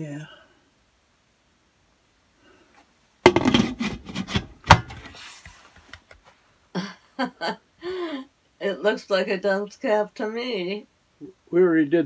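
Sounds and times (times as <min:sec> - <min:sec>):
knocks and rubbing clatter: 0:03.3 - 0:06.3.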